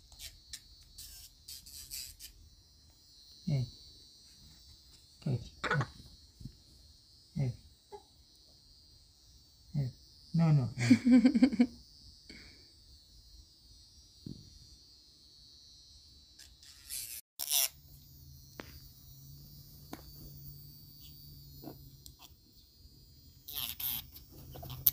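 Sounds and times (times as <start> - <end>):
electric nail file whining: 0.0 - 3.3, 16.4 - 24.9.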